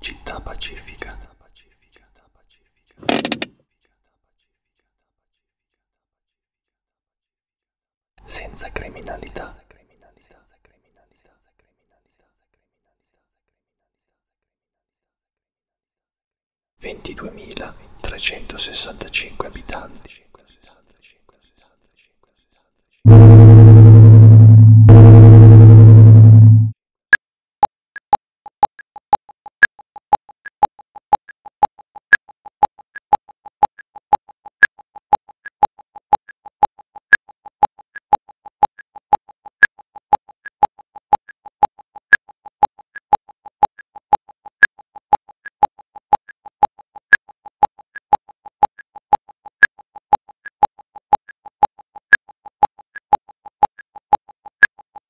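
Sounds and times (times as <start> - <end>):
electronic ticking blips: 23.1 - 26.7, 28.7 - 55.0
loud low synthesizer note: 23.1 - 26.7.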